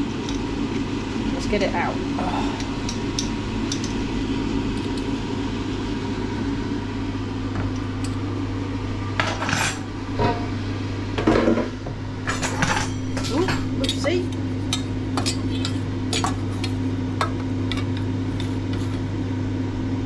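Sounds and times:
air fryer fan hum: 0:00.0 - 0:20.0
metal dish clinking: 0:12.3 - 0:14.0.

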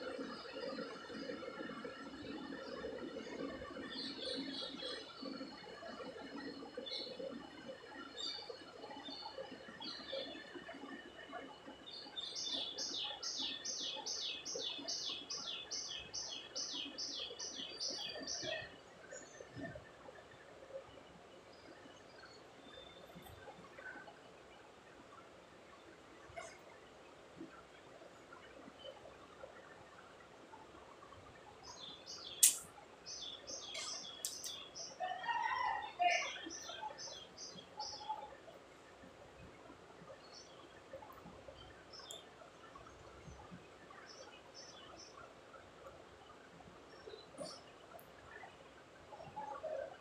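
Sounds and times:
faint bird chirps: 0:00.0 - 0:24.2, 0:27.4 - 0:50.0
small bird chirping: 0:31.7 - 0:35.0
sharp click: 0:32.4 - 0:32.7, 0:34.2 - 0:34.6.

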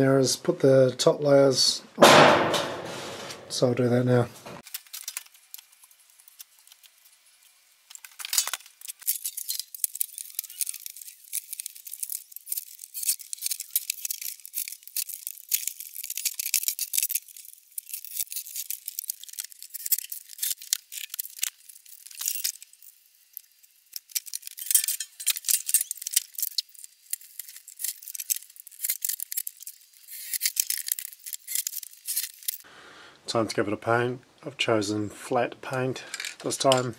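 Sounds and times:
metal roofing sheets clattering: 0:02.0 - 0:03.7.

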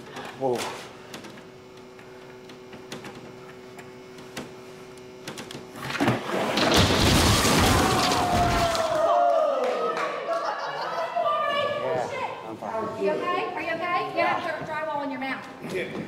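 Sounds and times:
drywall cracking and crashing: 0:05.8 - 0:09.1.

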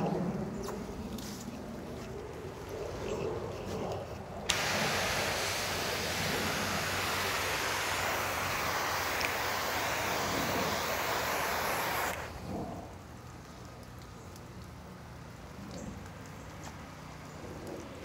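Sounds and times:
water spray hissing: 0:04.5 - 0:12.4.

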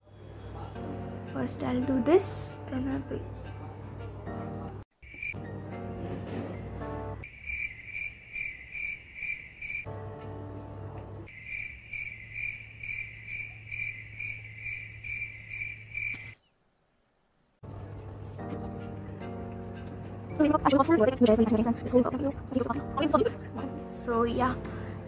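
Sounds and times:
cricket chirping: 0:05.0 - 0:05.5, 0:07.2 - 0:09.9, 0:11.2 - 0:19.9.

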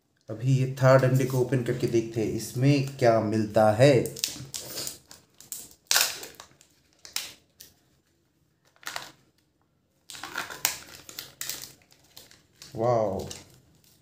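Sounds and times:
foil crinkling: 0:04.0 - 0:07.8, 0:10.1 - 0:14.0.

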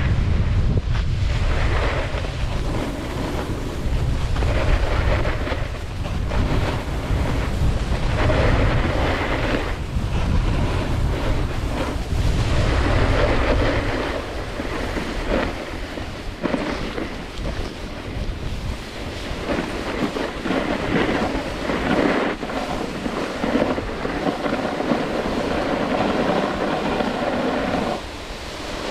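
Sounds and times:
skis carving over packed snow: 0:00.0 - 0:28.9
wind buffeting microphone: 0:00.0 - 0:28.9.

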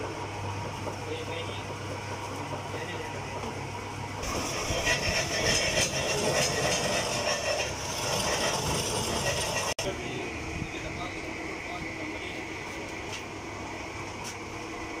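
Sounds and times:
lathe motor hum: 0:00.0 - 0:15.0
harsh metallic scraping and rattling: 0:04.2 - 0:09.8.

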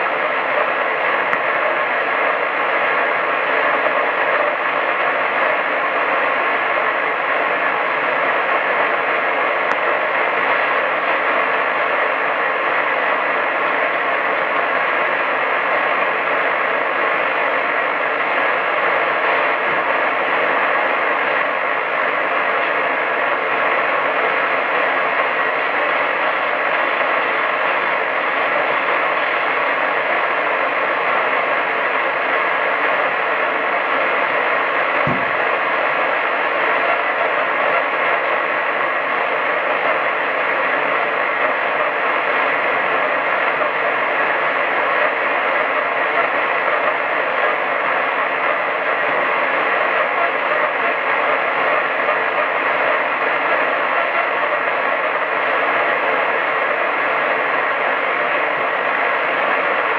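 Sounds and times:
radio static hiss: 0:00.0 - 0:59.9
brief low thump: 0:35.0 - 0:35.3.

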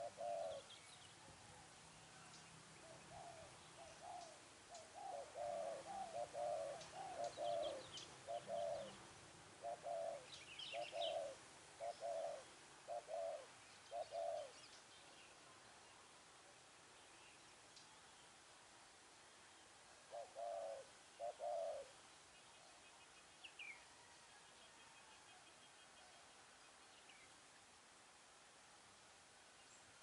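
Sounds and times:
dove cooing: 0:00.0 - 0:01.7, 0:02.8 - 0:09.0, 0:09.6 - 0:14.6, 0:20.1 - 0:22.0.

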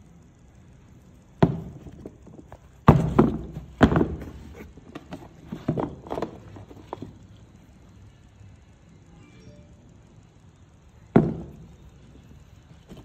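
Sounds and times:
sneakers knocking on cardboard box: 0:01.4 - 0:01.9, 0:02.8 - 0:06.4
handling noise: 0:01.4 - 0:07.5.

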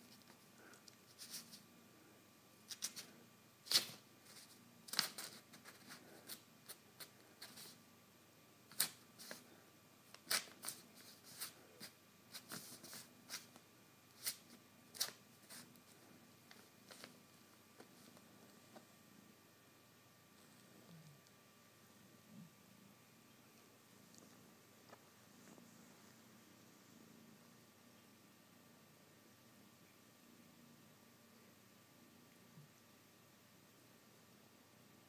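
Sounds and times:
kitten scratching paper: 0:00.0 - 0:01.7, 0:02.7 - 0:07.8, 0:08.7 - 0:17.2
paper rustling and crackling: 0:03.7 - 0:07.8, 0:14.2 - 0:17.2.

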